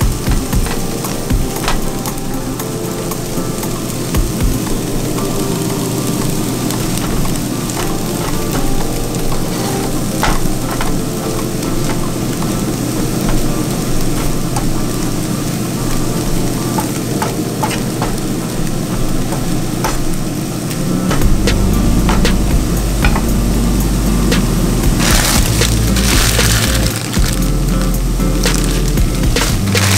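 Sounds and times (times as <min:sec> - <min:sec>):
vegetables sizzling in frying pan: 0:00.0 - 0:29.9.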